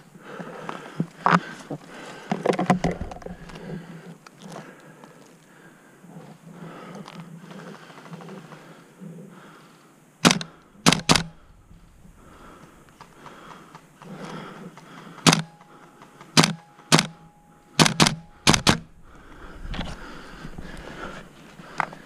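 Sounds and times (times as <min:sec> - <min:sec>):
airsoft gun firing sharp cracks: 0:10.2 - 0:11.4, 0:14.9 - 0:18.9.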